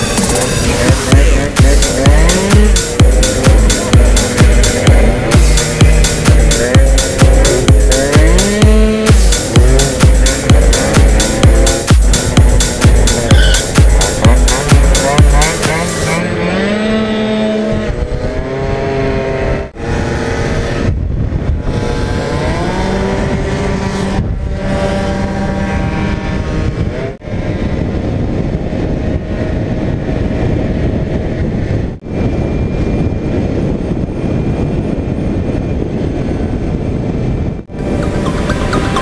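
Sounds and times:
scooter engines revving: 0:00.0 - 0:28.0, 0:37.7 - 0:39.0.

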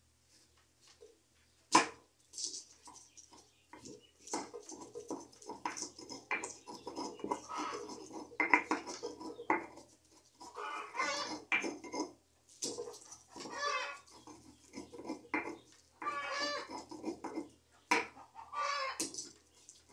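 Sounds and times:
gritty scraping of pestle: 0:01.8 - 0:18.2
stone pestle knocking on stone: 0:03.7 - 0:09.8, 0:11.2 - 0:12.1, 0:14.7 - 0:15.6, 0:16.4 - 0:18.1.

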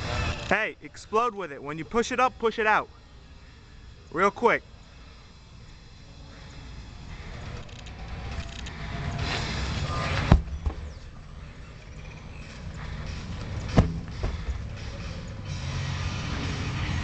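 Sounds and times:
heavy tire thudding on ground: 0:09.8 - 0:11.0, 0:13.4 - 0:14.8.

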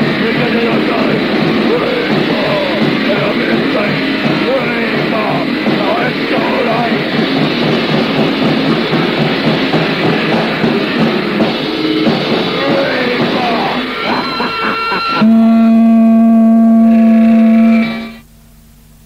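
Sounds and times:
heavy metal music: 0:00.0 - 0:18.2
low hiss and hum: 0:15.2 - 0:19.0.

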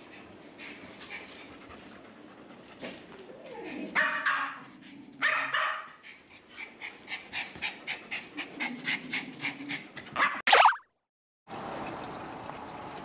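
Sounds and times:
dog panting rapidly: 0:06.0 - 0:10.2.

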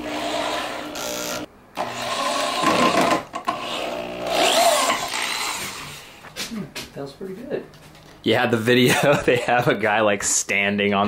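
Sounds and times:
power drill driving screws: 0:00.0 - 0:06.0.

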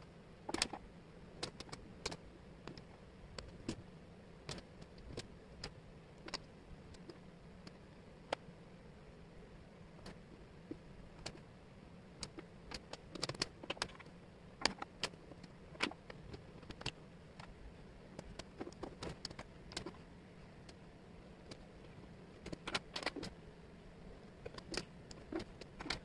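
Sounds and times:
wooden puzzle pieces clicking: 0:22.4 - 0:23.4, 0:24.4 - 0:26.0.

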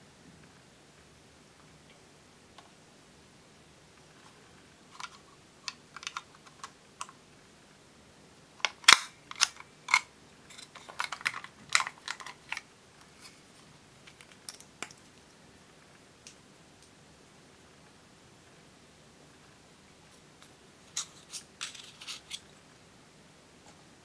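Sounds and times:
plastic compact handled: 0:05.0 - 0:07.2, 0:08.6 - 0:12.7, 0:21.0 - 0:22.4.

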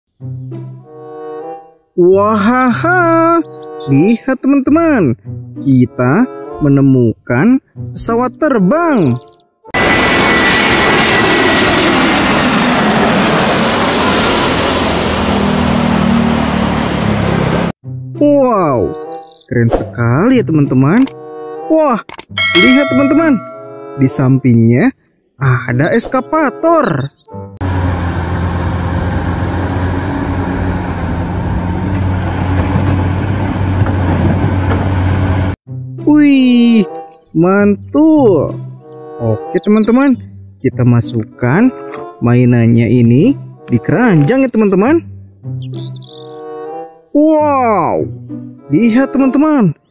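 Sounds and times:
faint jet engine whine: 0:09.8 - 0:17.7, 0:27.6 - 0:35.6
jet engines roaring: 0:09.8 - 0:17.7, 0:27.6 - 0:35.6
excavator diesel engine running: 0:27.6 - 0:35.6.

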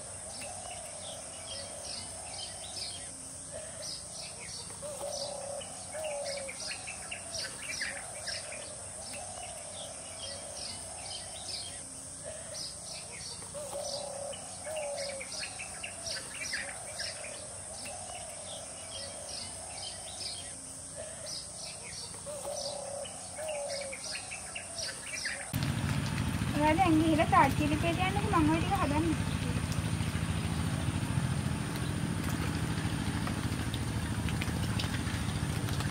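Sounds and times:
bird warbling calls: 0:00.0 - 0:25.6
birds chirping: 0:00.0 - 0:35.9.

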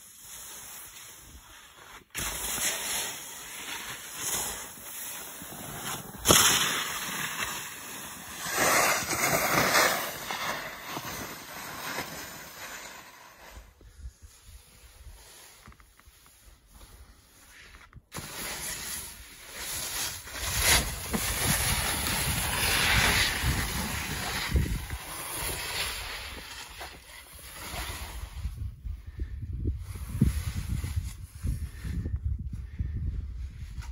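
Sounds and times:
skis scraping over snow: 0:00.0 - 0:28.6
wind on microphone: 0:20.5 - 0:26.0, 0:27.8 - 0:33.9.

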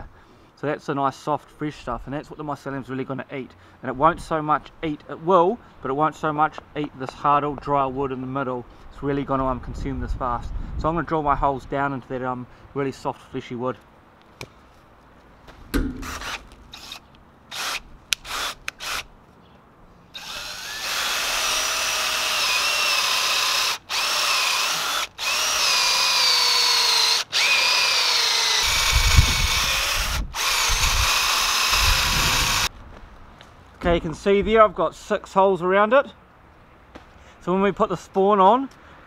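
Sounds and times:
short knocks and clicks: 0:15.5 - 0:16.6
cordless drill whining: 0:16.0 - 0:19.1, 0:20.2 - 0:32.7.

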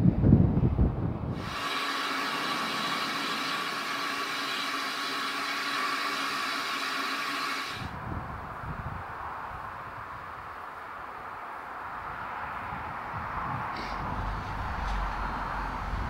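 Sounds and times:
steam hissing: 0:01.3 - 0:08.0.

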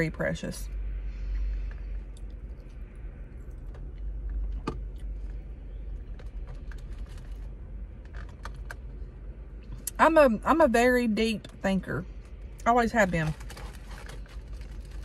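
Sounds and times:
vehicle cabin low rumble: 0:00.0 - 0:15.0
chewing and wet mouth sounds: 0:01.3 - 0:08.9.

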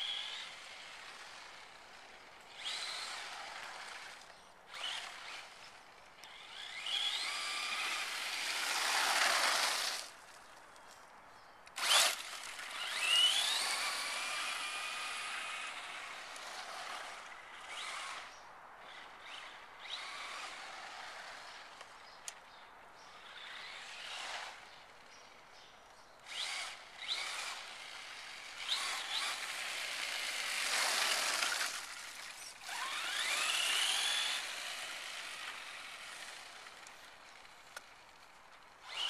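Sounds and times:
electric motor whining: 0:02.5 - 0:10.1, 0:11.8 - 0:18.3, 0:26.3 - 0:37.0.

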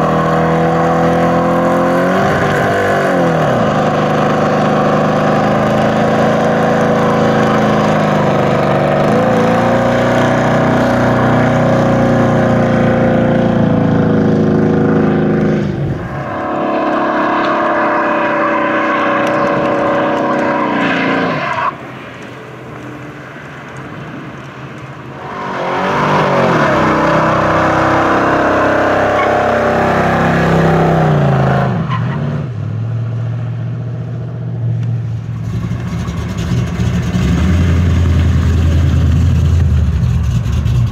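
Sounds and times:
car engine revving hard: 0:00.0 - 0:21.8, 0:25.1 - 0:32.5
tyres spinning and squealing: 0:14.2 - 0:32.4.

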